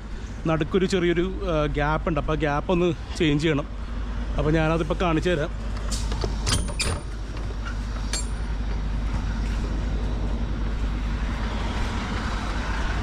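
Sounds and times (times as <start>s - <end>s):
truck engine idling: 0.0s - 12.8s.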